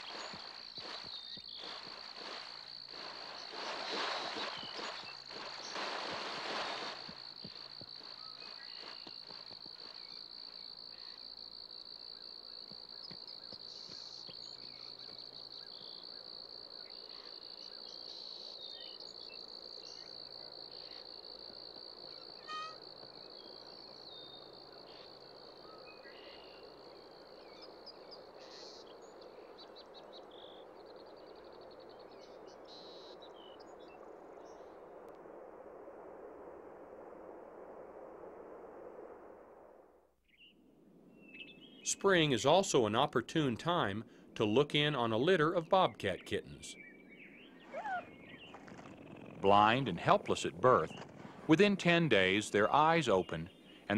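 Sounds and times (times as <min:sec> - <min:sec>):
deer splashing through water: 0:00.0 - 0:10.1
crickets chirping: 0:00.0 - 0:37.0.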